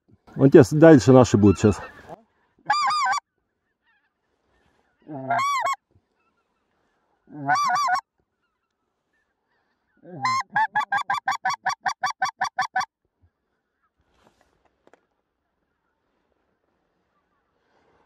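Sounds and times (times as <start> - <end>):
goose call clucks: 1.5 - 3.2, 5.0 - 6.4, 7.3 - 8.0, 10.0 - 12.9
goose call honks: 5.0 - 5.8, 7.3 - 8.0, 10.1 - 12.9.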